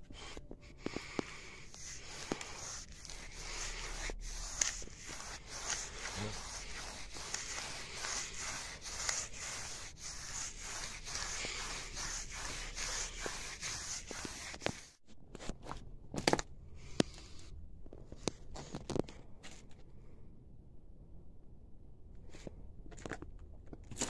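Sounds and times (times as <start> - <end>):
paintbrush scrubbing on wall: 0.0 - 15.0.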